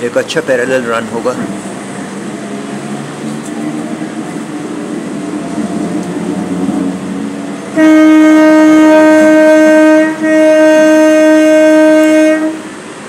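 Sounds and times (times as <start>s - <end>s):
moving train rumbling: 0.0s - 13.0s
train horn blasts: 7.7s - 12.9s.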